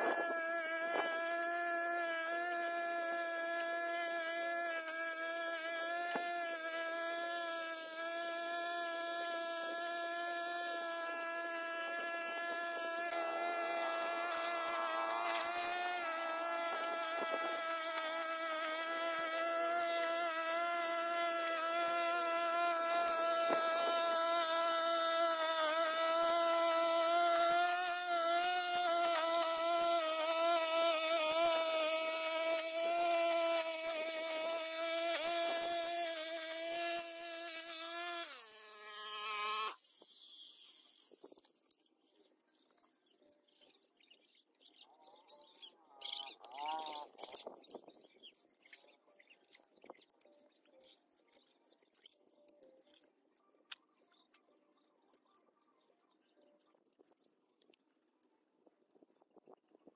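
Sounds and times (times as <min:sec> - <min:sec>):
brush cutter engine buzzing: 0:00.0 - 0:39.8.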